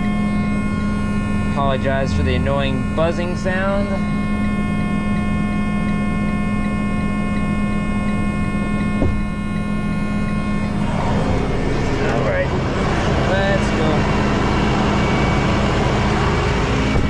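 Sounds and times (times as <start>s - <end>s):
electrical buzzing: 0.0s - 17.0s
rush of noise: 10.3s - 17.0s.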